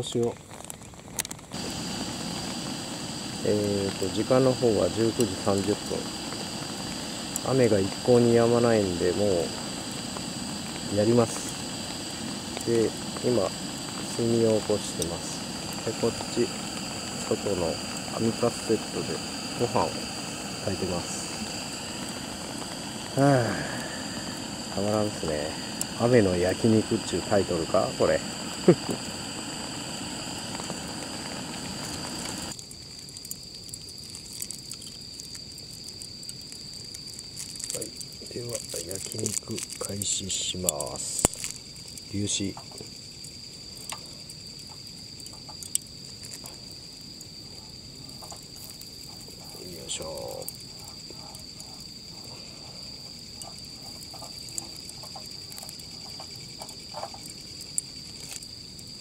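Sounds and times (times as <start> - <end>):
rain pattering: 0.0 - 42.9
charcoal crackling: 0.0 - 59.0
frogs calling: 0.0 - 59.0
gas stove burner hissing: 0.0 - 59.0
night insects trilling: 0.0 - 59.0.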